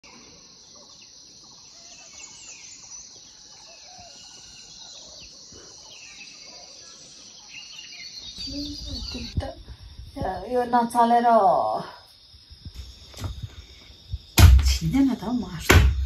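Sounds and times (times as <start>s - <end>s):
birds chirping and calling: 0.0s - 10.6s
high-pitched outdoor hiss: 0.0s - 16.0s.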